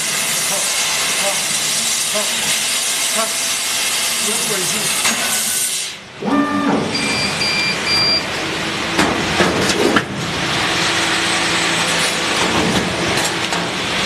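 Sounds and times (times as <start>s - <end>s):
laser cutter hissing: 0.0s - 6.4s
short high beeps: 6.3s - 8.3s.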